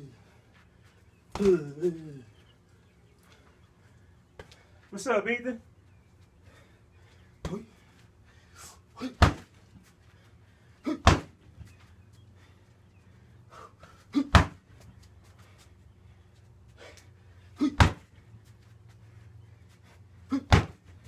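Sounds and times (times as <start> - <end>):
heavy thuds on punching bag: 9.2 - 9.5, 11.0 - 11.4, 14.3 - 14.6, 17.7 - 18.1, 20.4 - 20.8.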